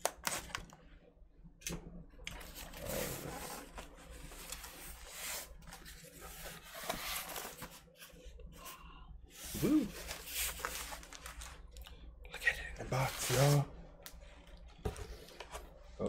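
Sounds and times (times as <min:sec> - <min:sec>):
cardboard rubbing and scraping: 0:02.5 - 0:07.8.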